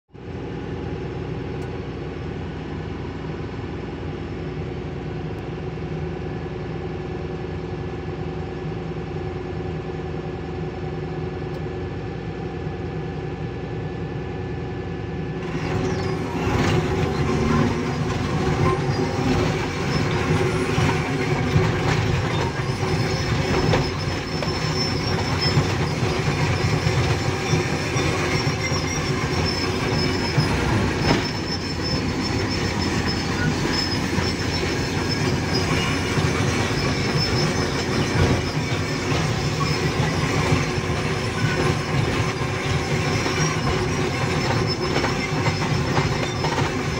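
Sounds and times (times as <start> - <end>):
excavator diesel engine running: 0.2 - 46.9
steel tracks clattering and squealing: 15.4 - 46.9.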